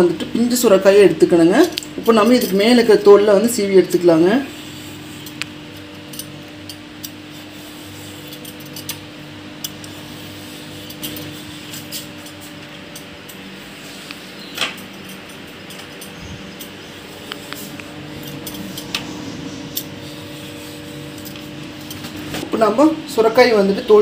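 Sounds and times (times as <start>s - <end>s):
steady hum: 0.0s - 24.0s
vegetable peeler scraping: 4.2s - 6.4s, 7.0s - 22.4s.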